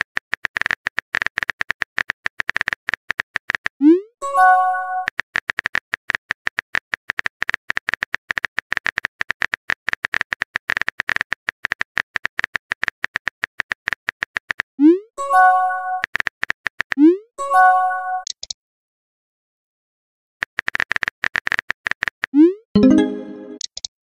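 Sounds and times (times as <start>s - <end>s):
app notification chime: 17.4s - 18.2s, 22.8s - 23.6s
keyboard typing clicks: 18.2s - 18.6s, 22.8s - 23.9s.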